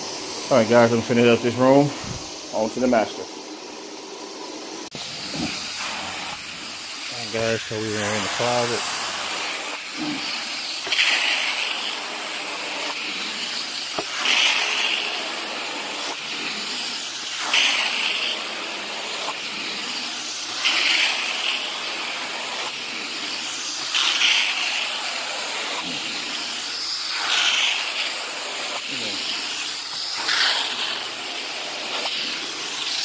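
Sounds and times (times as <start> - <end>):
carpet extraction wand hissing: 0.0 - 33.0.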